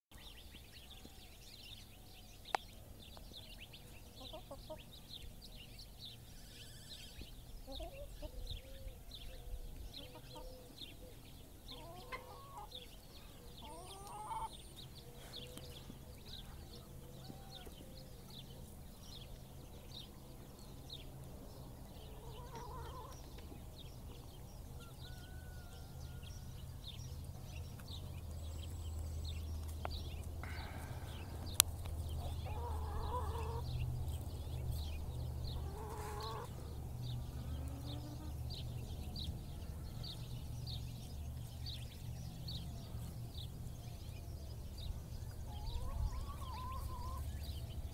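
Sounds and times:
low steady rumble: 23.2s - 47.9s.

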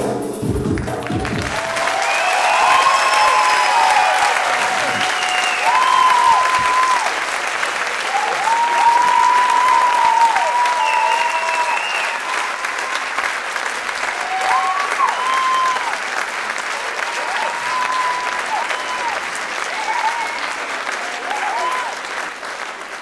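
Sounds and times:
audience applauding: 0.8s - 23.0s
high-pitched crowd calls: 1.4s - 7.3s, 8.0s - 13.1s, 14.1s - 16.0s, 17.0s - 22.0s.

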